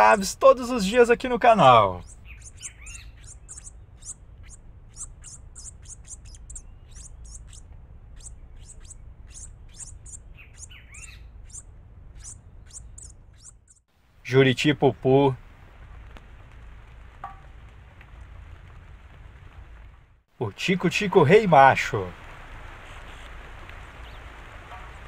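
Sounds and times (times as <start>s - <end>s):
lower slurred bird calls: 0.0s - 13.9s, 22.8s - 25.0s
songbirds high chirps: 0.0s - 13.9s, 22.9s - 25.0s
steady low rumble: 0.0s - 20.3s.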